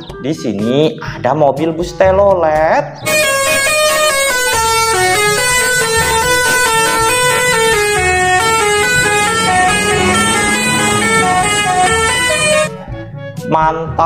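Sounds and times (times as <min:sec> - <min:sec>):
multi-tone bus horn tune: 0:03.1 - 0:13.0.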